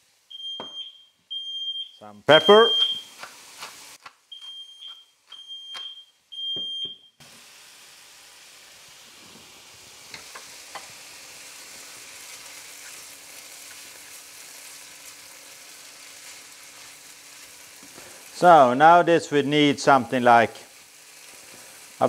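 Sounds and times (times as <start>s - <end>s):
food sizzling in frying pan: 0.0s - 0.6s, 2.3s - 4.3s, 7.2s - 22.0s
smoke alarm beeping: 0.3s - 3.1s, 4.3s - 7.2s
spatula stirring in pan: 9.6s - 18.3s.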